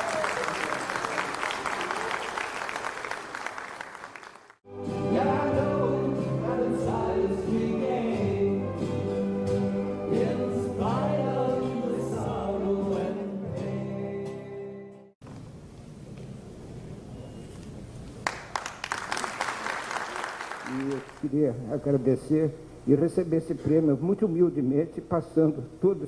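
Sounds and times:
applause: 0:00.0 - 0:04.6, 0:18.2 - 0:21.3
person singing with guitar: 0:04.9 - 0:15.0.

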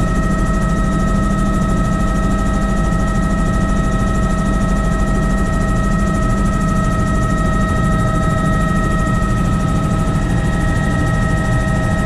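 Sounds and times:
constant high whine: 0:00.0 - 0:12.0
helicopter rotor and engine drone: 0:00.0 - 0:12.0.

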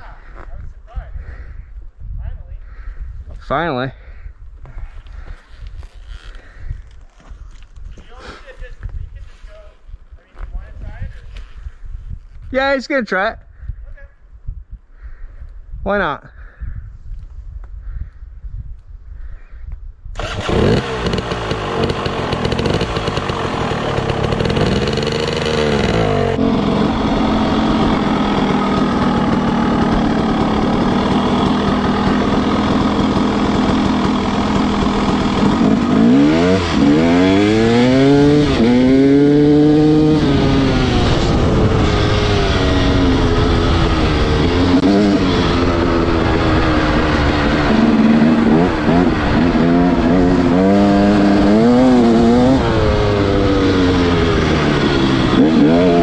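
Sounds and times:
wind and road noise: 0:00.0 - 0:56.0
dirt bike engine revving: 0:20.2 - 0:56.0.

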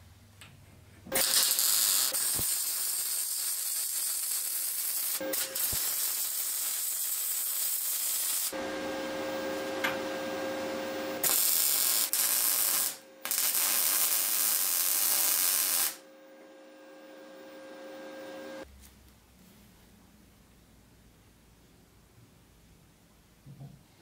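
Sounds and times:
welding arc crackling and hissing: 0:01.1 - 0:08.6, 0:11.0 - 0:16.0
welding machine hum: 0:01.1 - 0:18.6.

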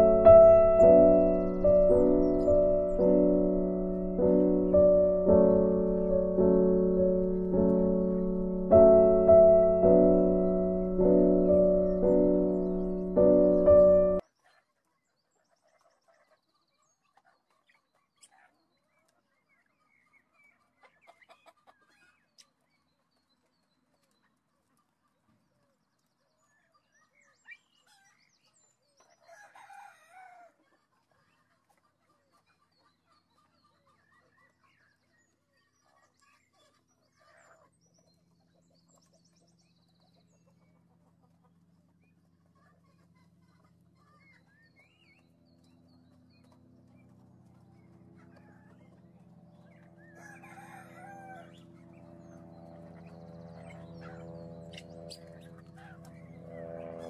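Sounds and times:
chickens clucking: 0:00.0 - 0:14.6, 0:30.6 - 0:34.9, 0:40.4 - 0:44.6, 0:46.5 - 0:51.6
chicken drawn-out call: 0:50.0 - 0:51.7.

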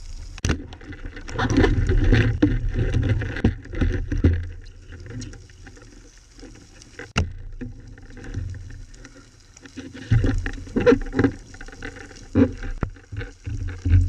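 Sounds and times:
underwater rumble: 0:00.0 - 0:14.0.

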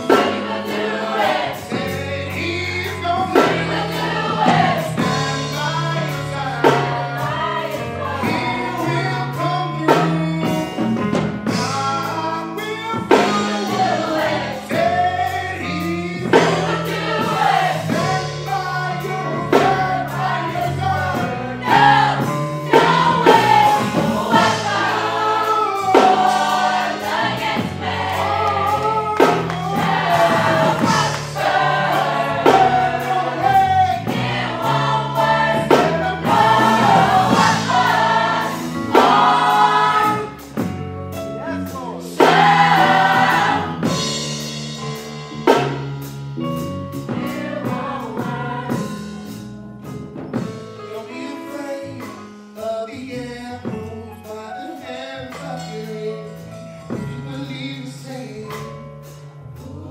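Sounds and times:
choir singing: 0:00.0 - 0:10.2, 0:11.5 - 0:40.6, 0:41.4 - 0:44.4, 0:47.0 - 0:49.5
low bass notes: 0:08.0 - 0:50.8
steady beat: 0:16.4 - 0:49.5.

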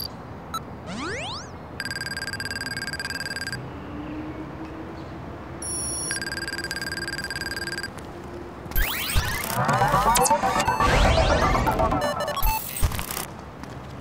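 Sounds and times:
rapid high electronic beeps: 0:00.9 - 0:03.6, 0:08.7 - 0:13.3.

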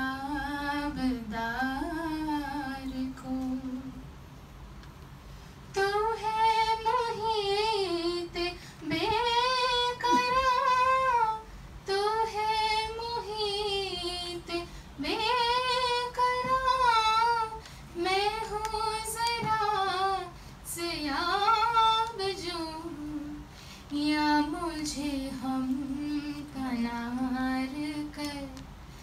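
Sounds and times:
singer's breaths: 0:08.5 - 0:08.9, 0:23.4 - 0:24.0.

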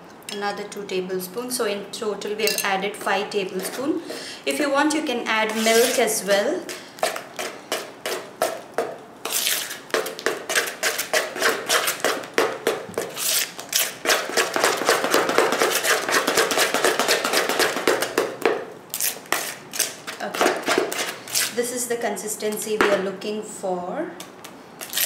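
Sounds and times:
spoon beating batter in bowl: 0:19.2 - 0:21.2.

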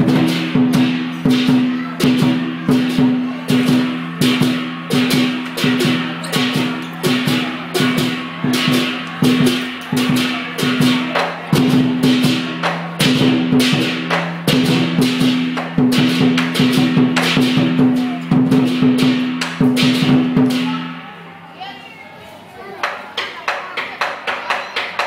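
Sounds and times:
cymbals crashing: 0:00.0 - 0:21.2
drum beating: 0:00.0 - 0:21.2, 0:22.8 - 0:25.0.

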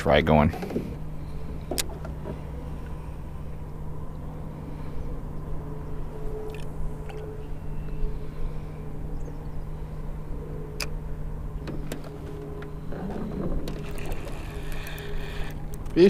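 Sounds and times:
electric trolling motor humming: 0:00.0 - 0:16.0
motor whine: 0:00.5 - 0:16.0.

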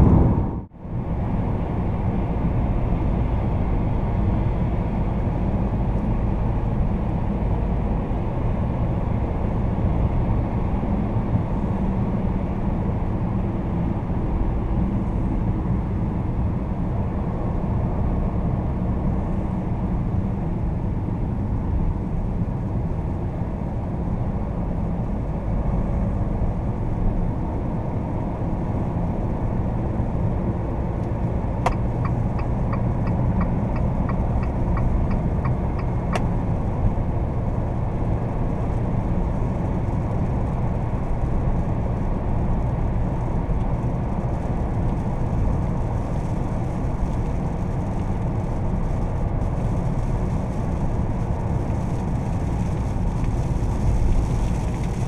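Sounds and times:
tyre and road noise: 0:00.0 - 0:06.7, 0:18.2 - 0:55.0
engine drone: 0:00.0 - 0:12.4
turn signal ticking: 0:31.6 - 0:36.3.

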